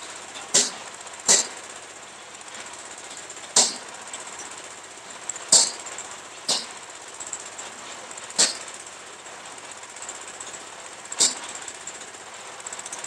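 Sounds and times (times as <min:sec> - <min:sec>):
metallic knocks on steel mast: 0:00.5 - 0:01.6, 0:03.6 - 0:03.9, 0:05.5 - 0:05.8, 0:06.5 - 0:06.7, 0:08.4 - 0:08.6.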